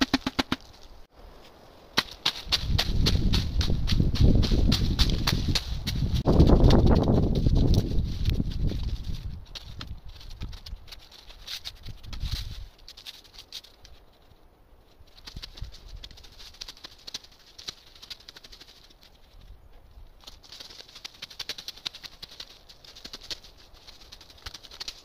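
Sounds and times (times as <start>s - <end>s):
hoe dragging through dry leaves: 0.0s - 14.3s.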